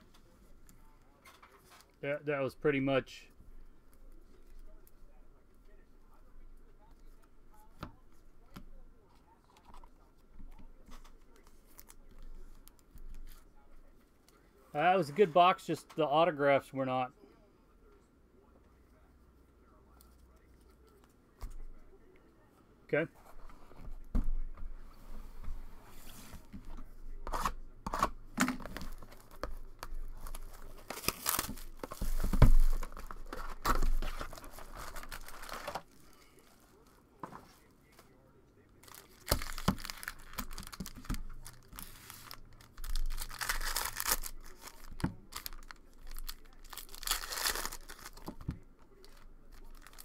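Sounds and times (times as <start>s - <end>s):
cards shuffled and tapped: 26.5s - 35.8s
wrapping tearing and crinkling: 27.3s - 36.8s, 38.8s - 50.0s
foil packs rustling: 28.7s - 35.9s, 38.8s - 48.4s, 49.0s - 50.0s.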